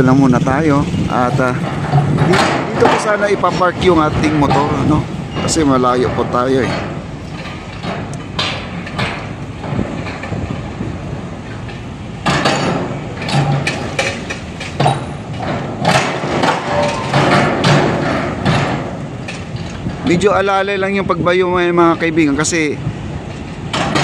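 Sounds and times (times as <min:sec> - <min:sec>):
machine rumble: 0:00.0 - 0:24.0
pile hammer impacts: 0:01.4 - 0:10.2, 0:12.2 - 0:19.4.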